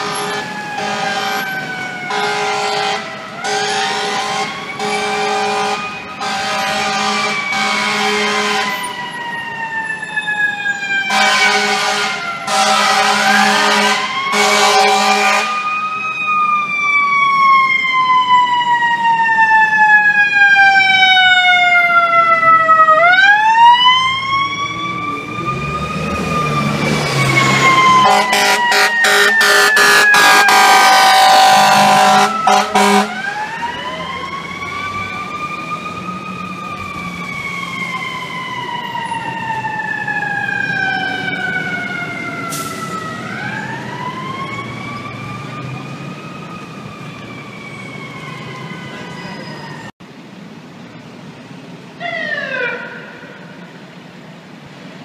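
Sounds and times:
air horn blasts: 0:00.0 - 0:08.8, 0:11.1 - 0:15.7, 0:28.0 - 0:33.2
fire truck siren: 0:00.0 - 0:50.0, 0:52.0 - 0:54.5.

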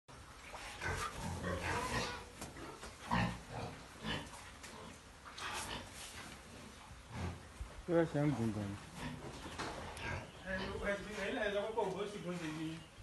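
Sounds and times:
pigs grunting: 0:00.7 - 0:05.9, 0:08.9 - 0:10.9.

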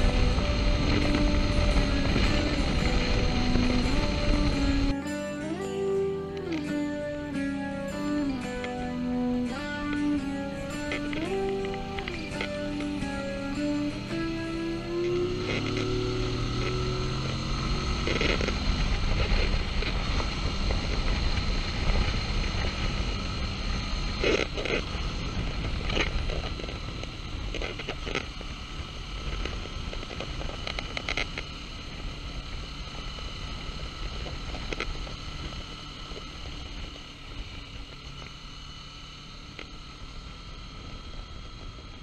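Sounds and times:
wind rushing on microphone: 0:00.0 - 0:04.9
motorcycle engine running: 0:00.0 - 0:42.0.

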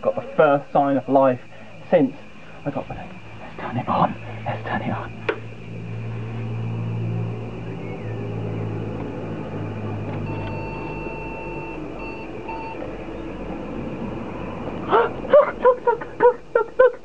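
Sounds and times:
computer humming: 0:00.0 - 0:16.7
computer speaker beeps: 0:10.3 - 0:12.8.

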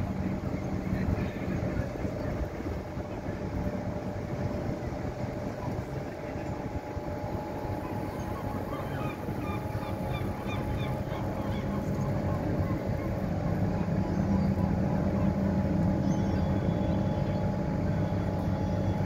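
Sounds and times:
boat engine running: 0:00.0 - 0:19.0
seagulls calling: 0:07.4 - 0:19.0.

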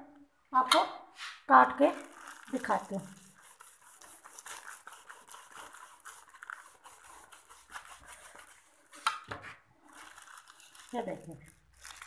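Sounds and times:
knife sawing through wrapped bread: 0:02.0 - 0:09.0, 0:09.9 - 0:12.0.

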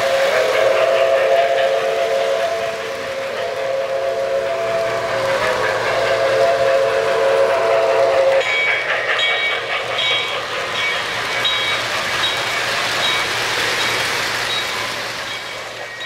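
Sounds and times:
model train steam whistle: 0:00.0 - 0:09.7
model train wheels rumbling: 0:00.0 - 0:16.0.

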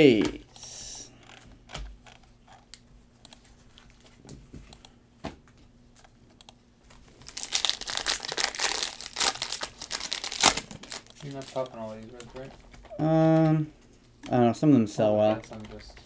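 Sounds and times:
foil wrapper tearing: 0:07.2 - 0:11.6.

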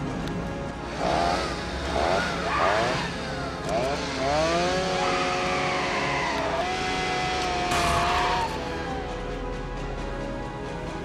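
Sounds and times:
chainsaw revving: 0:00.8 - 0:08.5.

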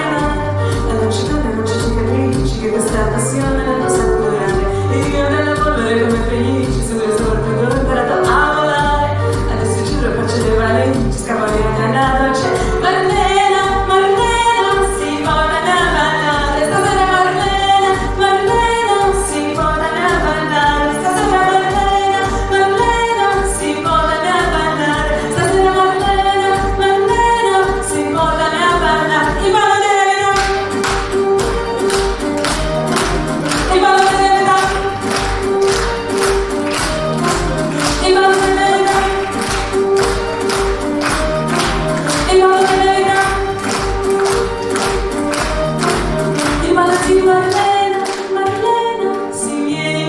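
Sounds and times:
backing music with kick-drum beat: 0:00.0 - 0:29.6, 0:30.2 - 0:48.8
woman singing pop song: 0:00.0 - 0:50.0
busy percussion pattern: 0:30.2 - 0:48.8.

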